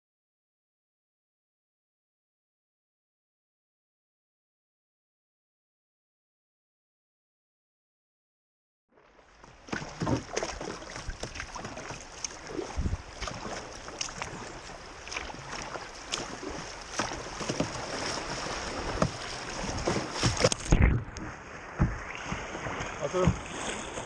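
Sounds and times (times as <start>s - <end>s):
water splashing against hull: 9.0s - 24.0s
river water rushing: 9.1s - 24.0s.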